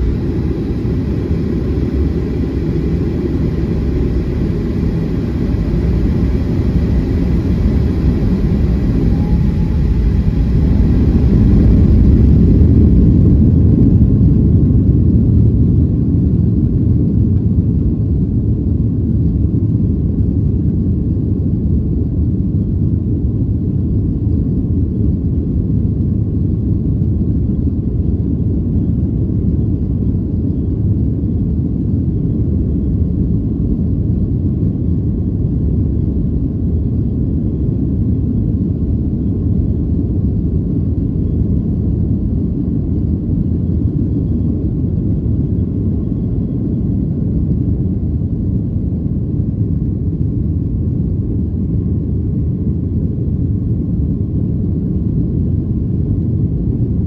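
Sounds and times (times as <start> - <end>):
jet engine cabin rumble: 0.0 - 57.0.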